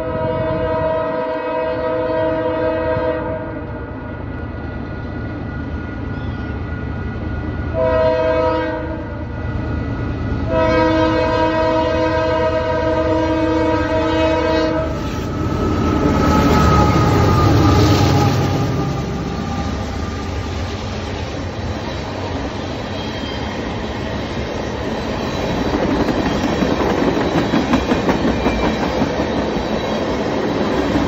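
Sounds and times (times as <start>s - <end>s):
locomotive air horn chord: 0.0s - 3.8s, 7.7s - 9.2s, 10.4s - 15.2s
train wheels on rails: 2.6s - 31.0s
locomotive engine passing: 9.2s - 31.0s.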